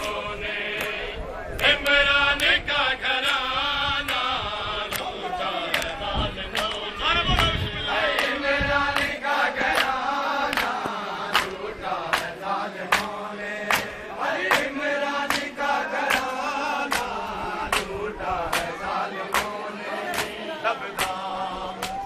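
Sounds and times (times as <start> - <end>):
men chanting a lament: 0.0 - 22.0
hands slapping chests: 7.4 - 20.4, 21.0 - 21.2, 21.8 - 22.0.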